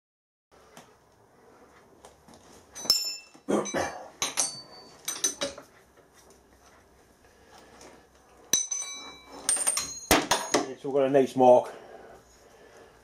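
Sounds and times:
metal tools clinking on steel table: 2.7 - 5.7, 8.5 - 10.8.

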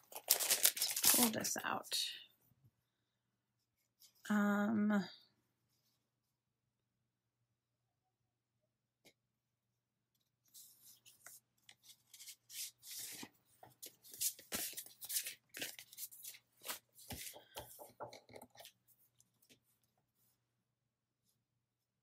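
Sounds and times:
paper crinkles: 0.0 - 1.5, 10.5 - 17.4
paper rustling and sliding: 10.4 - 17.4.

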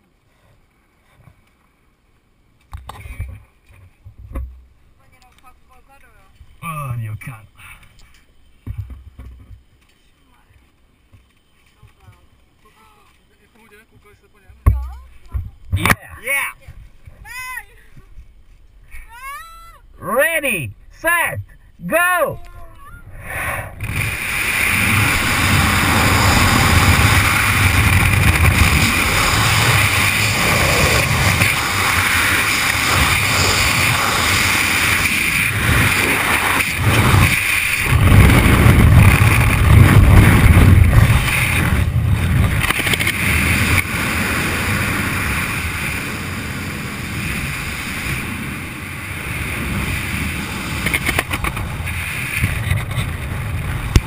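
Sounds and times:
wind buffeting microphone: 22.3 - 54.0.

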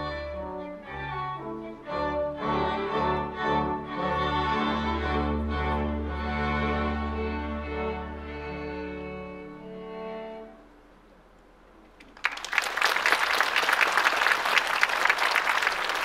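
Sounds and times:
string orchestra chord: 0.0 - 11.0
audience applause: 12.0 - 16.0.

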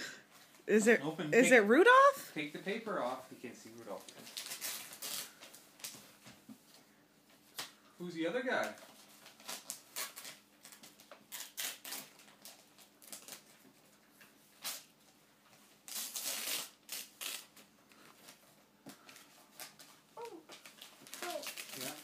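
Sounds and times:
wrapping paper rustling: 3.0 - 6.2, 8.5 - 22.0.

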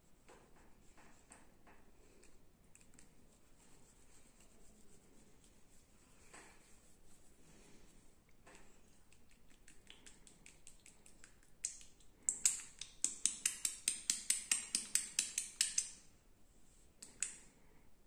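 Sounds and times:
snapping clicks of massage: 8.3 - 16.1, 17.0 - 17.5.

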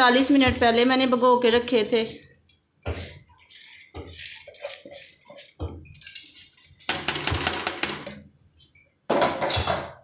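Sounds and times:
metal utensils scraping a pot: 3.0 - 7.4.

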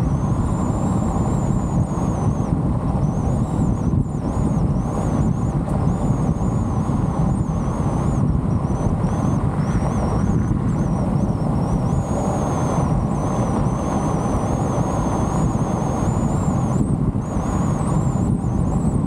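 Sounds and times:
car tyres and engine rumble: 0.0 - 19.0.

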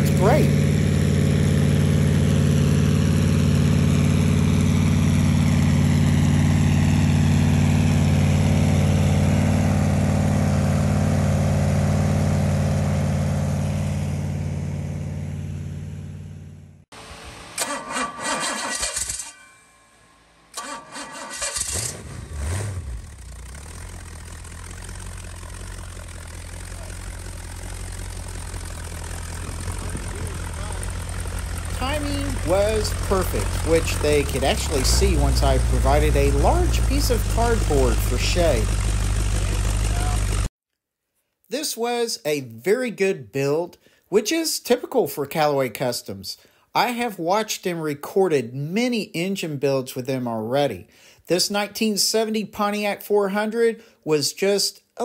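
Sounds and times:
engine running through open exhaust: 0.0 - 19.2, 20.5 - 40.5
engine idling: 0.0 - 19.3, 20.5 - 40.5.

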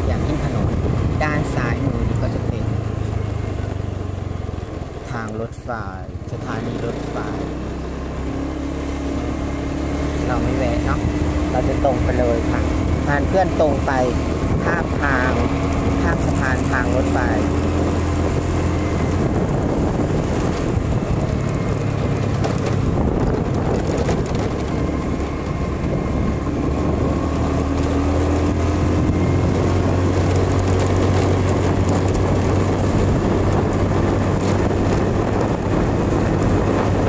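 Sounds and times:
motorcycle engine running: 0.0 - 37.0
wind noise on microphone: 0.0 - 37.0.

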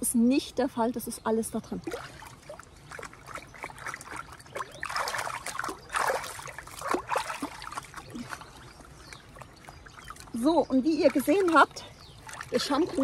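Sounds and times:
water splashing: 1.6 - 13.0.

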